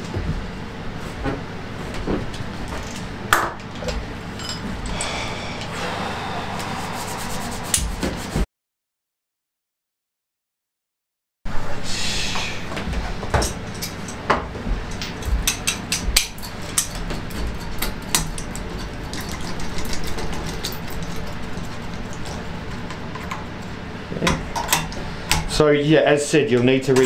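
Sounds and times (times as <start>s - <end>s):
steady low hum: 0.0s - 8.5s, 11.5s - 27.0s.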